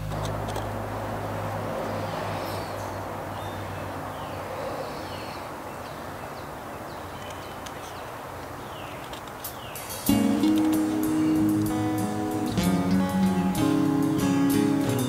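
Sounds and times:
sharp clicks: 0.0 - 0.7, 8.9 - 11.1
bird chirps: 2.4 - 10.2
outdoor hiss: 6.6 - 15.0.

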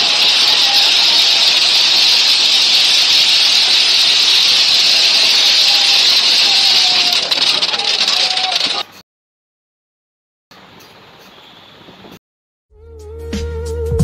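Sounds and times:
fire hissing: 0.0 - 8.8
faint voices: 4.9 - 9.0.

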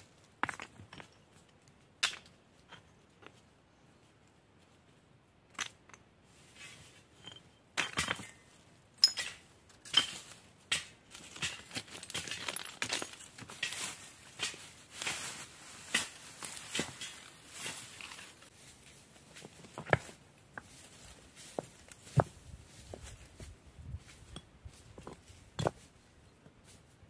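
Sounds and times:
stones clicking and knocking: 0.3 - 3.4, 5.5 - 6.1, 9.0 - 14.6
hands rustling dry leaves: 11.1 - 19.7.

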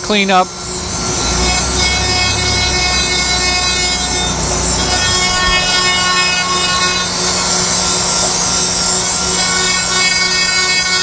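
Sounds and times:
grinding spindle whine: 0.0 - 11.0
grinding hiss: 0.5 - 11.0
low rumble: 4.1 - 8.0.

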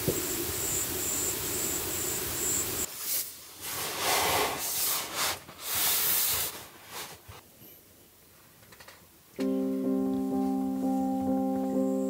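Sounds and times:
piano music: 9.4 - 12.0.

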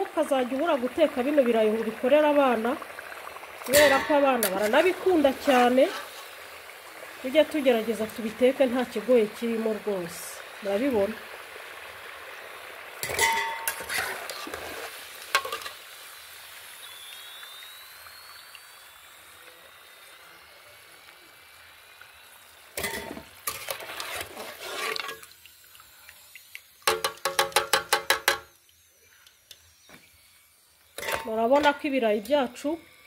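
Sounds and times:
oil sizzling: 0.0 - 33.0
metal skimmer clattering on pot: 3.6 - 4.7, 13.0 - 14.1, 22.8 - 23.6.

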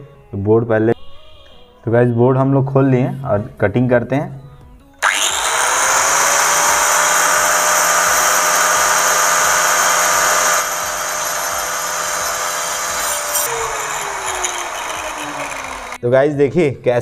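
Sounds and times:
angle grinder cutting into wall: 5.0 - 16.0.

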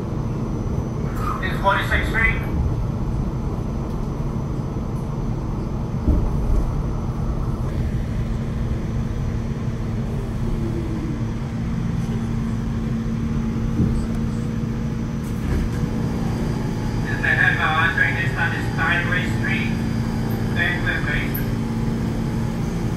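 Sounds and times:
subway train rumbling: 0.0 - 22.9.

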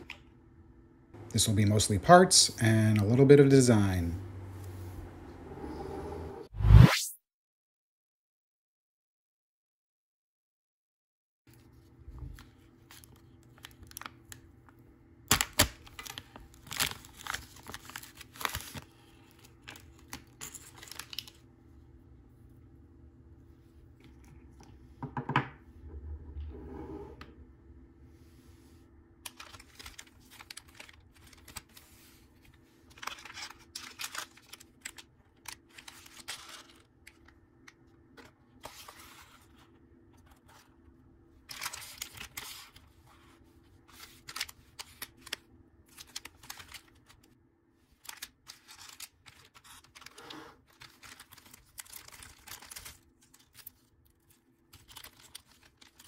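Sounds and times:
plastic bags crinkling: 48.0 - 56.0.

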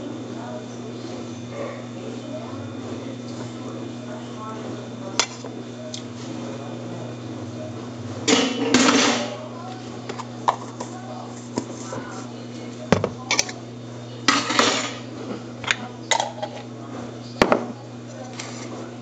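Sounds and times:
cutlery and dishes clinking: 13.3 - 13.6.

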